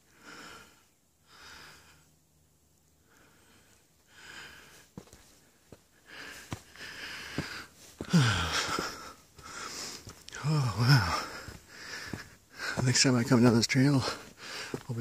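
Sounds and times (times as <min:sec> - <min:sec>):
man breathing hard and wheezing: 0:00.0 - 0:02.1, 0:03.0 - 0:04.9, 0:05.9 - 0:12.8, 0:14.1 - 0:14.8
footsteps on dirt trail: 0:04.0 - 0:15.0.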